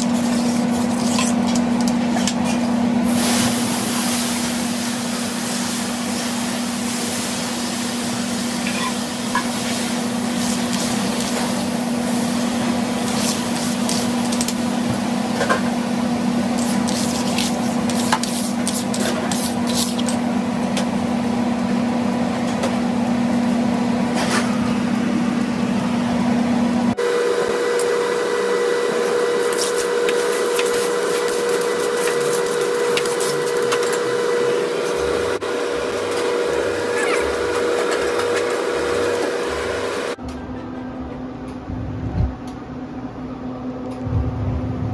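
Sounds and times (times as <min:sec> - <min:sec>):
steady hum: 0:00.0 - 0:44.9
water sizzling on hot grill: 0:03.0 - 0:15.2.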